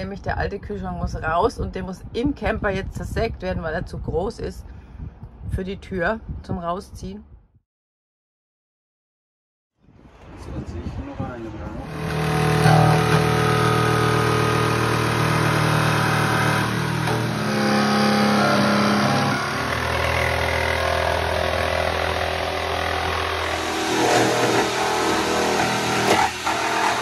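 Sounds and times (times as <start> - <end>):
electric jigsaw cutting metal: 11.8 - 27.0.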